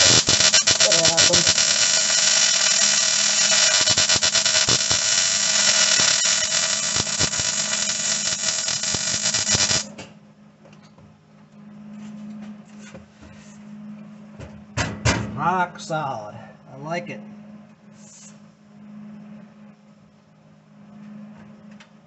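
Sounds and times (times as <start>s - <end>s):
welder arc crackling: 0.0s - 10.0s.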